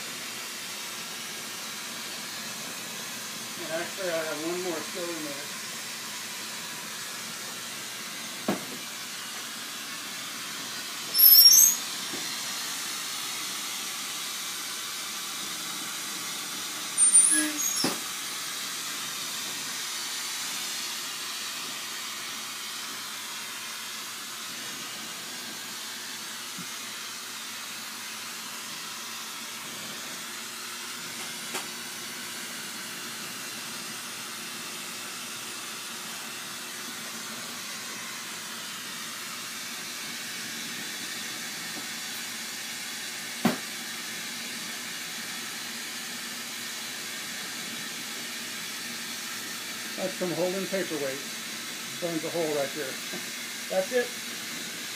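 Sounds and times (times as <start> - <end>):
torch flame hissing: 0.0 - 54.9
high-pitched squeaks: 11.1 - 11.8, 17.0 - 18.0.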